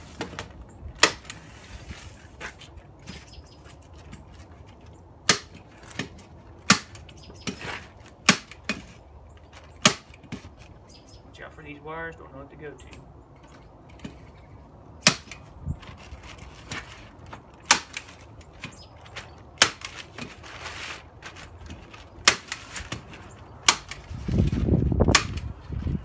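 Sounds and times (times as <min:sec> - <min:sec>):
plastic wrap rustling: 0:15.5 - 0:23.5.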